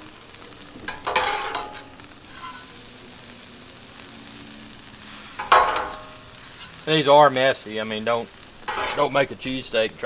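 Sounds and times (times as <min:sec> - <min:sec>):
meat sizzling on griddle: 0:00.0 - 0:10.0
spatula scrape on griddle: 0:00.8 - 0:02.9, 0:05.0 - 0:07.2, 0:08.0 - 0:09.6.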